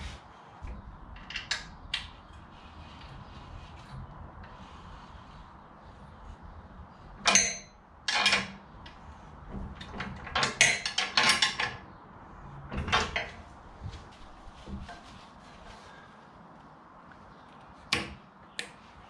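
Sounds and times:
wrench clinking against metal: 0:07.2 - 0:08.6.

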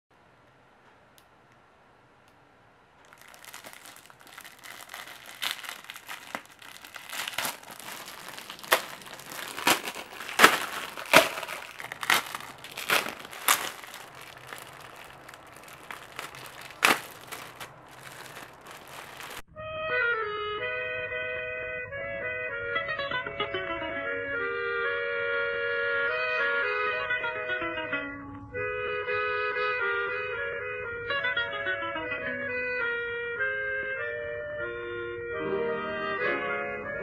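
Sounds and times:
plastic wrappers crinkling: 0:03.0 - 0:19.4.

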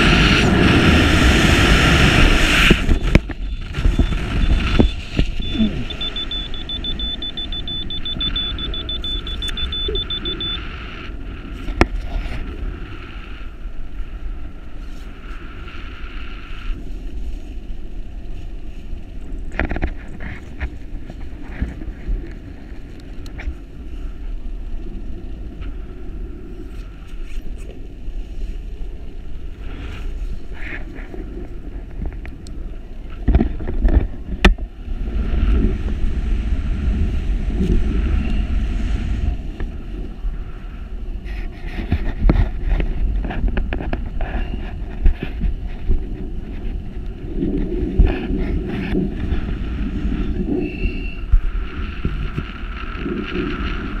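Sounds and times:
wind buffeting microphone: 0:00.0 - 0:16.0, 0:16.7 - 0:54.0.

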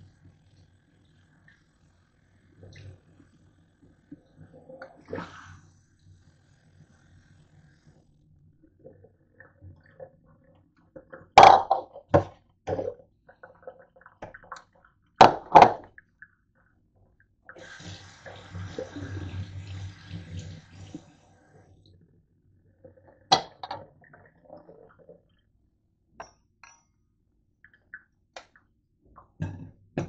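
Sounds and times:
faucet running water: 0:17.4 - 0:21.9.

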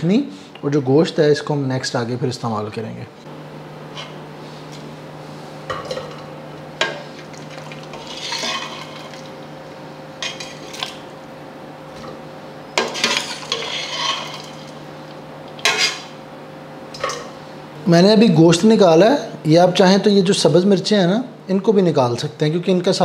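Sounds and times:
steady low hum: 0:00.0 - 0:23.0
ladle clinking against pots: 0:05.7 - 0:07.0.

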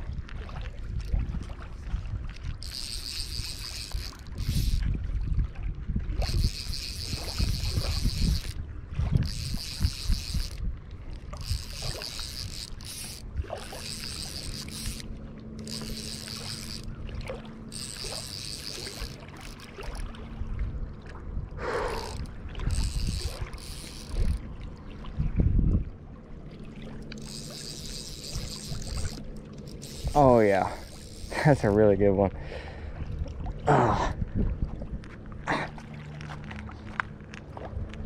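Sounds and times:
low rumble of wind and water: 0:00.0 - 0:38.0
fishing reel click drag ratcheting: 0:02.3 - 0:04.9, 0:06.2 - 0:08.6, 0:09.2 - 0:17.0, 0:17.6 - 0:20.0, 0:21.6 - 0:24.5, 0:27.0 - 0:31.8.

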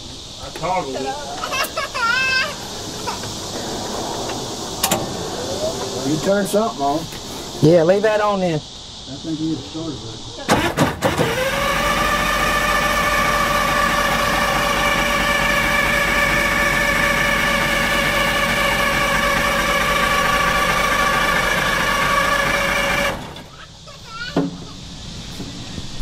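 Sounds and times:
starter cranking diesel engine: 0:10.5 - 0:23.5.

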